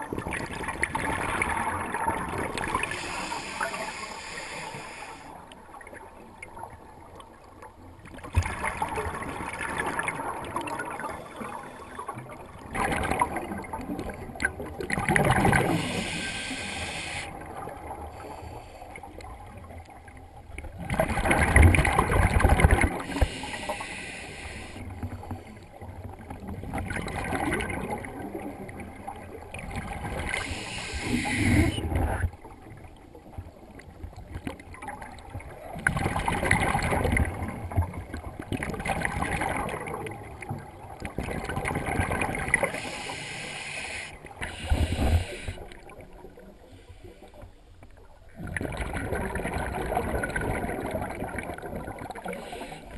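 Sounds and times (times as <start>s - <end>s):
underwater exhaled bubbles: 0.0s - 52.9s.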